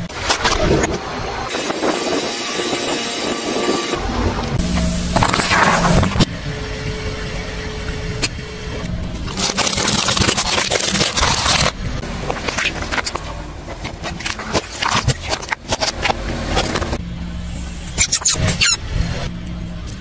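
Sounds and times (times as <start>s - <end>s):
plastic bottles crackling and popping: 9.2s - 17.0s.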